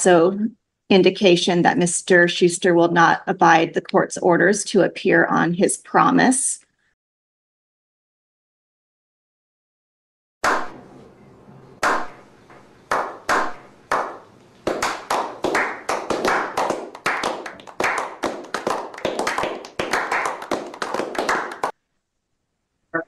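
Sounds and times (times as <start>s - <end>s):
group clapping: 10.5s - 10.8s, 11.8s - 21.8s.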